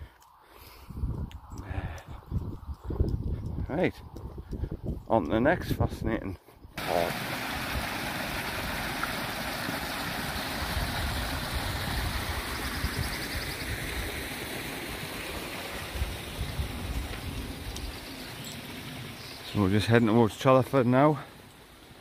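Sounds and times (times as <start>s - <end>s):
waterfall splashing over rocks: 6.8s - 21.0s.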